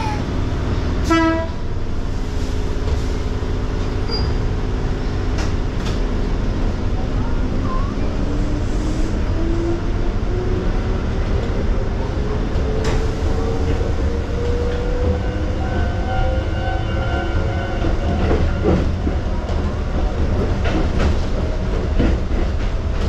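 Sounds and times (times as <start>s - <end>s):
train horn toot: 1.0s - 1.6s.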